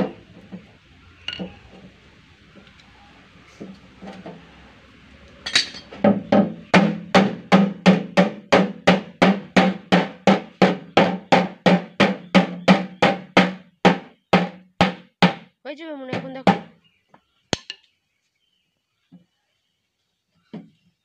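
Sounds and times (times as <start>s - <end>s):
hammer striking metal drum: 5.5s - 15.5s.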